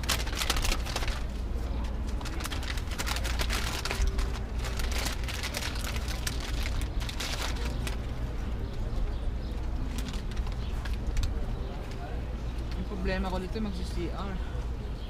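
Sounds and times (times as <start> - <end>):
paper bag crinkling: 0.0 - 8.2.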